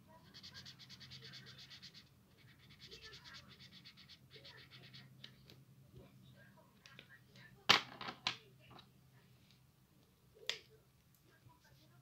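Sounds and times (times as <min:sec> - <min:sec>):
marker scribbling on paper: 0:00.1 - 0:05.3.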